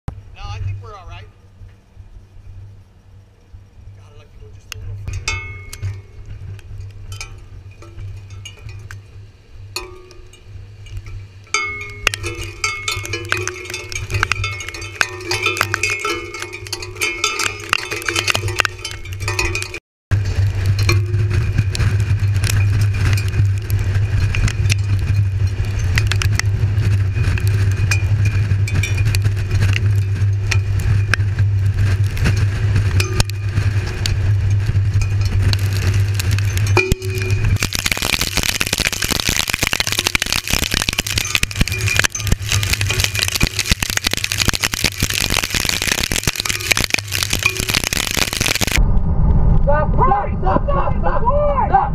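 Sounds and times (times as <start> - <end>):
wind buffeting microphone: 4.8 - 51.9
debris clicking on probe: 11.8 - 19.8, 35.0 - 48.8.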